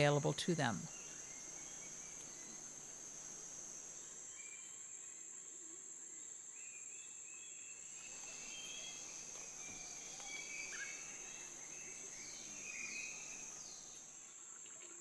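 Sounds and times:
high-pitched insect drone: 0.7 - 5.3, 7.8 - 14.4.

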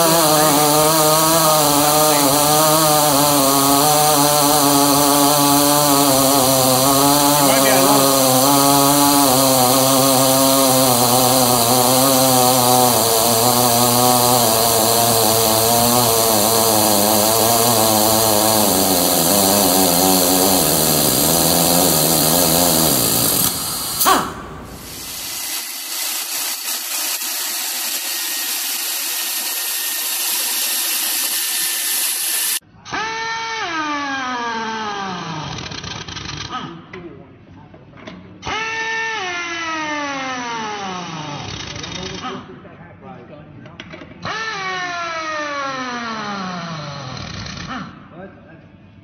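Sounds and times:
power torque wrench motor: 0.0 - 32.6
steady hum: 10.9 - 25.6.

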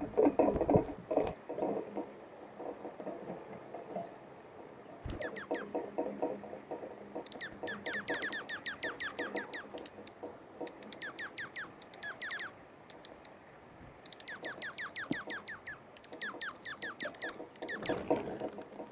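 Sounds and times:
bird chirping: 3.6 - 4.2, 5.0 - 5.8, 6.6 - 13.3, 13.9 - 18.3
faint rapid clicking: 5.0 - 18.9
high peeps: 5.1 - 5.6
high rapid bird trill: 5.2 - 5.6, 7.3 - 9.8, 10.8 - 13.3, 13.9 - 18.0.

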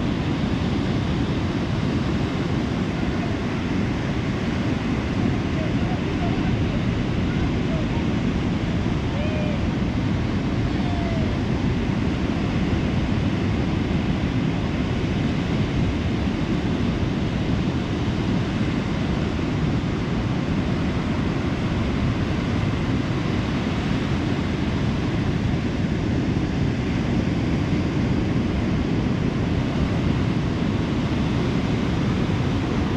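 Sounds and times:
ocean surf breaking on beach: 0.0 - 32.9.

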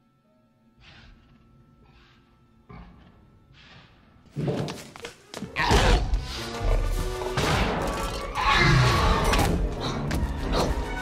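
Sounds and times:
tense orchestral music: 5.6 - 11.0.

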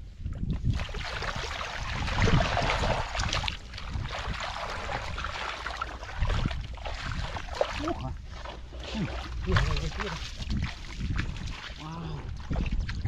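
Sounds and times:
hands splashing in muddy water: 0.6 - 13.0.

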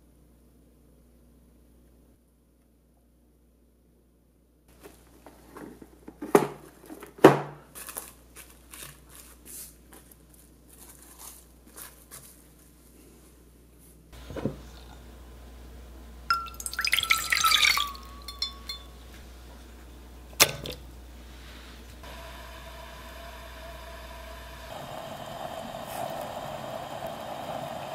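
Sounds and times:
cling film crinkling: 7.7 - 12.7.

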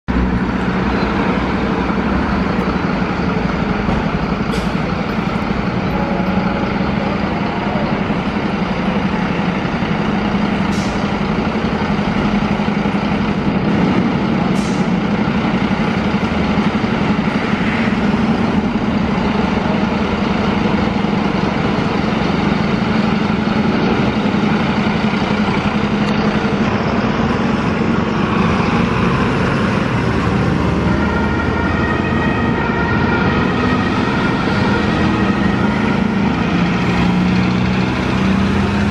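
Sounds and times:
fire truck diesel engines running: 0.1 - 38.9
air brakes hissing: 4.4 - 5.0, 10.6 - 11.2, 14.5 - 15.0.

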